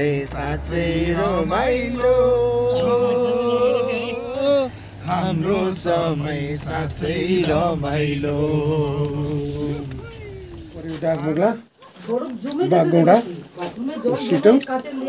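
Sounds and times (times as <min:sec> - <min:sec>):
person chanting: 0:00.0 - 0:11.2.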